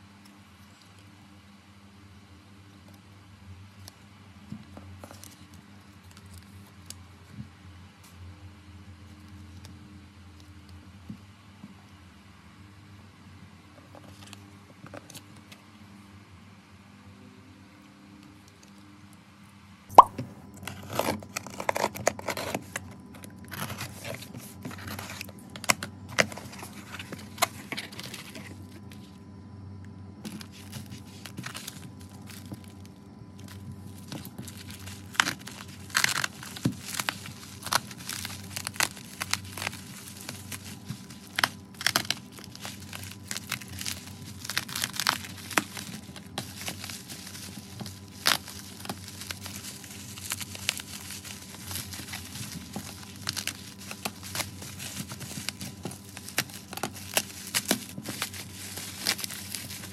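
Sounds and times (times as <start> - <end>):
bubble wrap crinkling: 19.9 - 29.2, 30.2 - 59.9.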